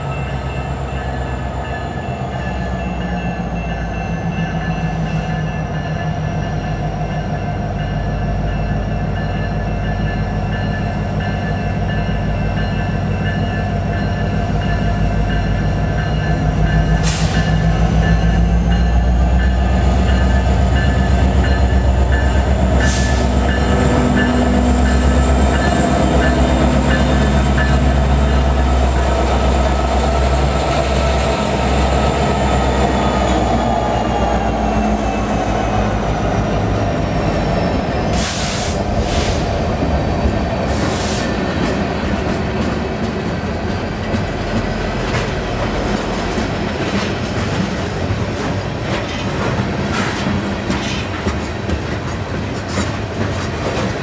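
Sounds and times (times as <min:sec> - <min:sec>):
diesel locomotives rumbling: 0:00.0 - 0:54.0.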